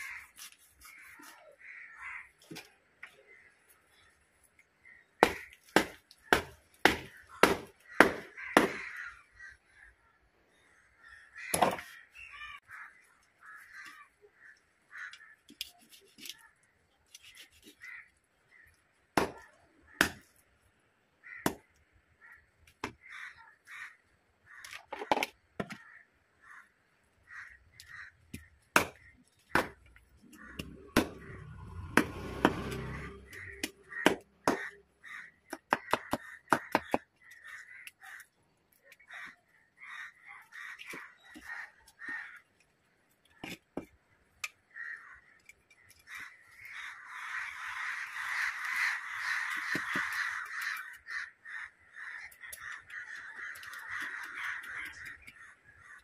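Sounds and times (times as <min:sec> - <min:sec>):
crows cawing: 0:00.0 - 0:04.2, 0:04.8 - 0:16.7, 0:17.3 - 0:20.4, 0:21.2 - 0:56.0
cleaver chopping on wooden block: 0:05.2 - 0:08.9, 0:19.2 - 0:19.4, 0:20.0 - 0:20.2, 0:28.8 - 0:29.8, 0:33.6 - 0:34.7, 0:35.5 - 0:37.1.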